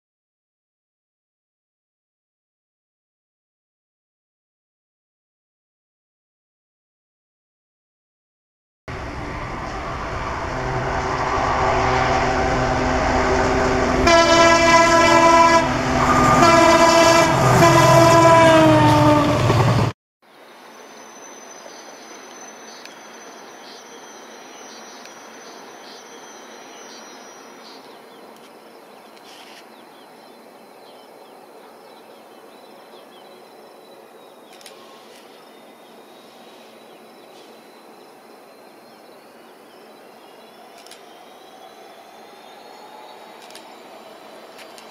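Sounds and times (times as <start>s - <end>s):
train rumble: 8.9s - 19.9s, 40.0s - 44.9s
locomotive horn blasts: 10.4s - 19.5s
insect trill: 20.5s - 27.8s.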